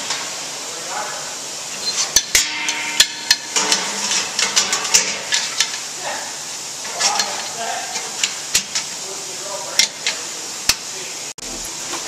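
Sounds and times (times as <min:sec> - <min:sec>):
metal lid clanking: 0:02.0 - 0:05.8
sharp metal knocks ringing: 0:02.2 - 0:04.8.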